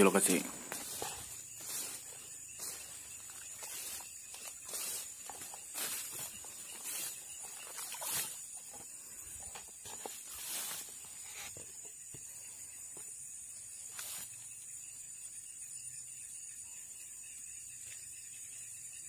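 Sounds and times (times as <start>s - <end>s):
brushing sounds: 0.0s - 11.8s
insects buzzing: 0.0s - 19.0s.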